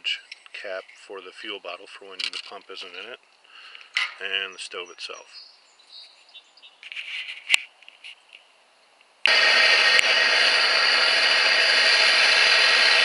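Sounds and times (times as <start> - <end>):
faint handling noises: 2.1 - 4.2
camp stove roaring: 9.2 - 13.0.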